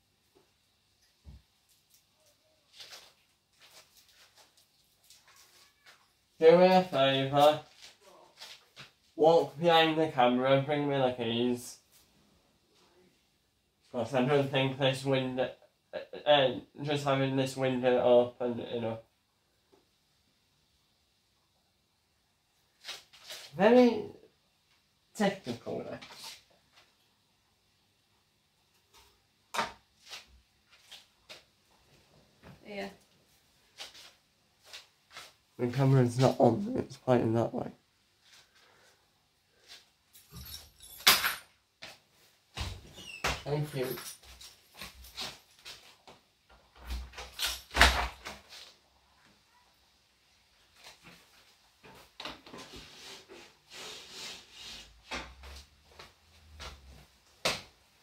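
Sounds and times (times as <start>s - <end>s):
hand rubbing and scraping objects: 50.7s - 57.2s.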